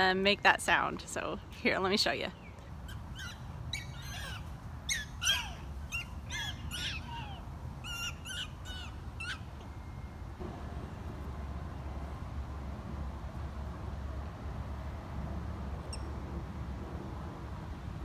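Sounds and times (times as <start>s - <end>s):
prairie dogs squeaky calls: 2.4s - 9.6s
faint low rumble: 9.5s - 18.0s.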